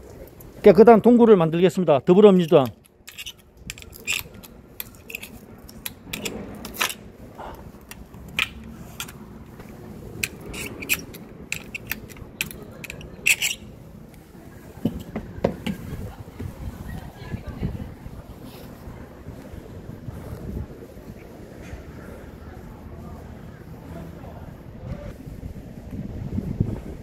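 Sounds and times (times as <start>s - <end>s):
wheeled trolley on pavement: 0.0s - 27.0s
litter picker tongs clicking: 2.3s - 7.0s, 7.8s - 9.2s, 10.2s - 13.7s
steady low rumble: 2.7s - 27.0s.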